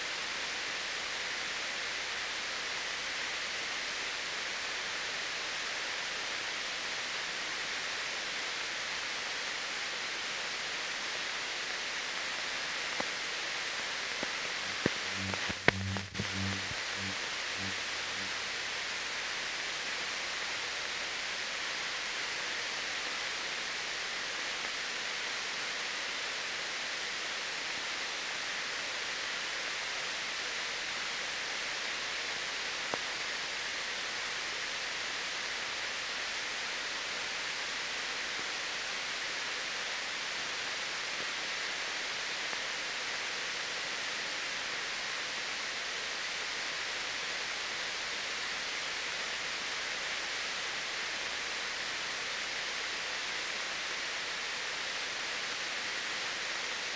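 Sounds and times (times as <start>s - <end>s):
steady film soundtrack hiss: 0.0s - 56.9s
faint click: 14.1s - 18.3s, 32.9s - 33.1s.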